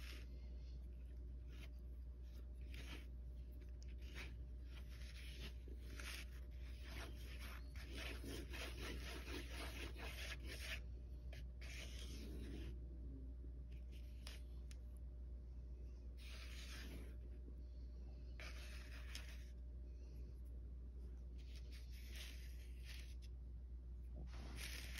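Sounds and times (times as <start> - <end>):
metal spoon scraping foam plate: 2.7 - 10.8.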